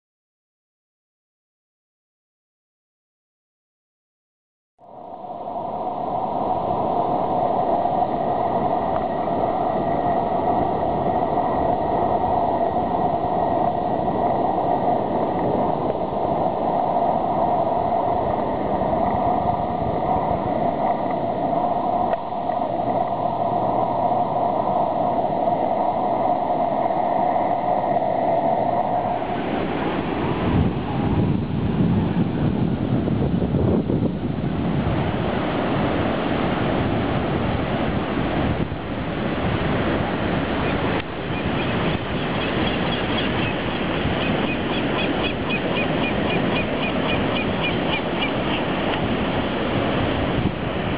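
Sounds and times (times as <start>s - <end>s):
steady droning note: 4.8s - 32.4s
ocean surf breaking: 4.9s - 50.9s
wind buffeting microphone: 4.9s - 50.9s.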